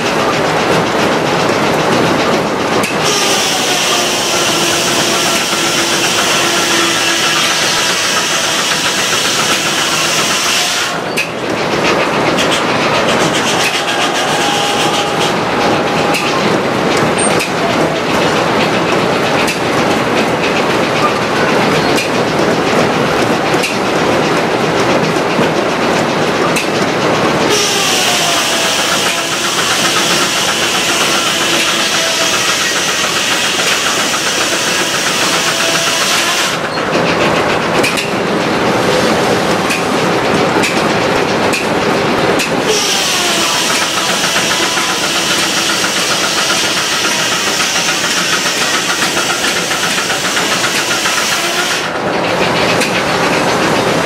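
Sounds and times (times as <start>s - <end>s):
mill carriage rattling: 0.0s - 54.0s
saw blade cutting log: 2.9s - 11.0s, 12.4s - 16.3s, 27.5s - 36.7s, 42.7s - 51.9s.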